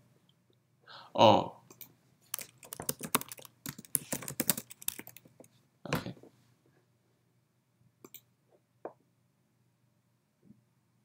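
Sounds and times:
typing on computer keyboard: 1.7s - 5.5s
mouse clicks: 8.0s - 8.3s.

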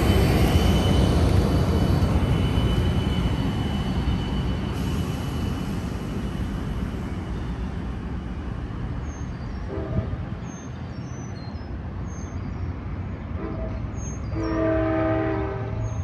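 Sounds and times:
diesel train rumbling: 0.0s - 16.0s
train horn: 9.7s - 10.3s, 13.4s - 16.0s.

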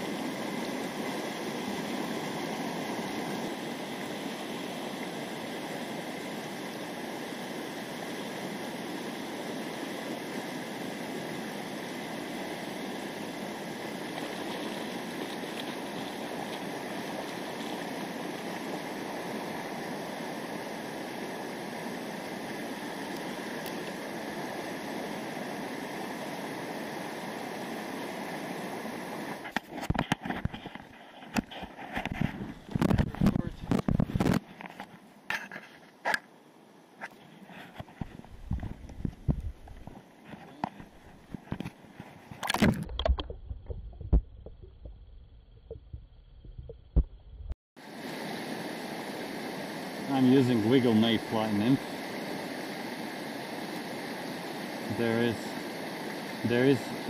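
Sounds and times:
river water flowing: 0.0s - 43.8s, 47.8s - 57.0s
irregular bumps and knocks: 42.7s - 47.6s.

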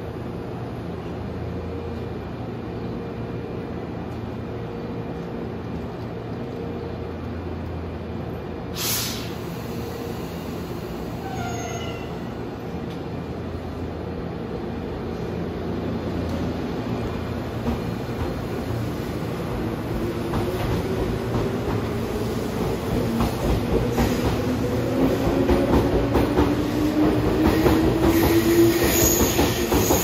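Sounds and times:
short sharp hiss of air: 8.8s - 10.6s.

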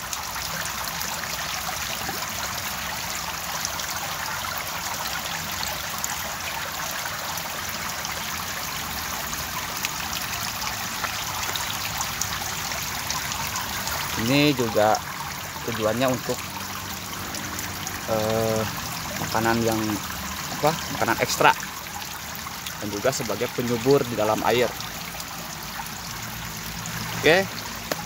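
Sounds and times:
water trickling and dripping: 0.0s - 28.0s.

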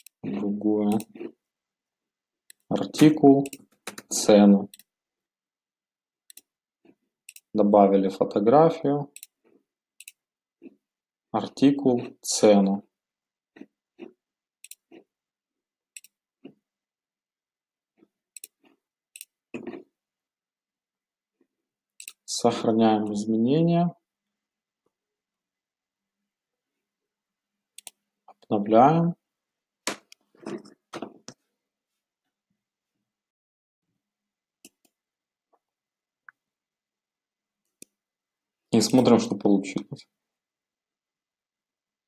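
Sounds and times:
computer mouse clicks: 0.9s - 1.3s, 3.4s - 4.9s, 6.3s - 6.5s, 7.2s - 7.5s, 9.1s - 9.4s, 10.0s - 10.2s, 14.6s - 15.0s, 15.9s - 16.2s, 18.3s - 19.8s, 22.0s - 22.2s, 27.8s - 28.0s.

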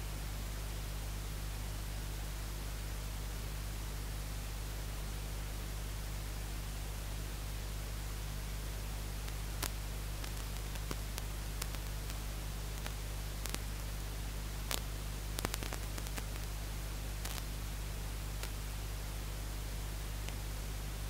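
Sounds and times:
low electrical hum: 0.0s - 21.0s
recording hiss: 4.9s - 21.0s
faint clicks and crackles: 9.2s - 16.6s, 17.2s - 17.6s, 18.3s - 18.7s, 20.2s - 20.5s.

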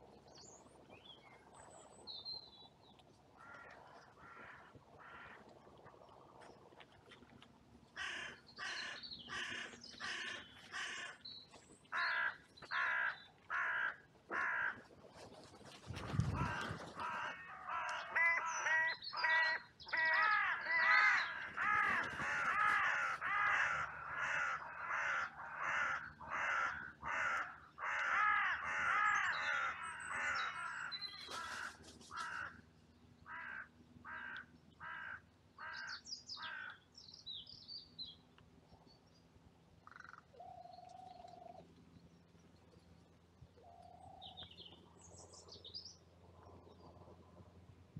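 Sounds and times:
crows cawing: 3.4s - 5.4s, 8.0s - 11.2s, 11.9s - 14.9s, 16.3s - 32.6s, 33.2s - 36.8s, 39.8s - 40.5s.

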